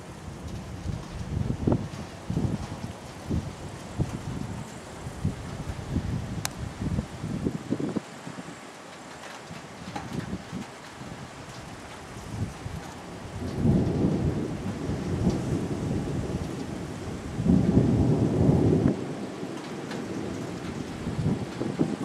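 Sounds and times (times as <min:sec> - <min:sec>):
thunder rumbling: 0:00.0 - 0:07.6, 0:11.2 - 0:22.0.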